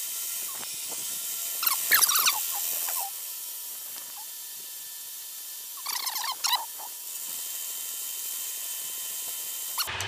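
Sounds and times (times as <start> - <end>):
milling machine running: 0.0 - 10.0
high squeals from cutter in steel: 1.6 - 3.2, 5.8 - 7.0.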